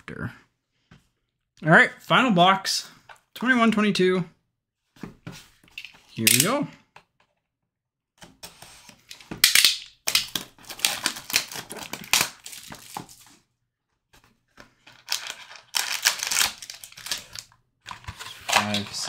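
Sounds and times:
foil pack crinkling: 9.4 - 13.2, 14.9 - 17.5
plastic wrap crackling: 15.0 - 17.4.

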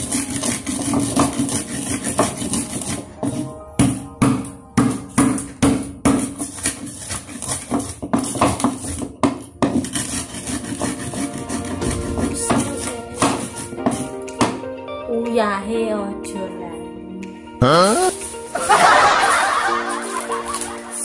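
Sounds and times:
pestle pounding in mortar: 0.0 - 14.6
background music: 0.0 - 21.0.

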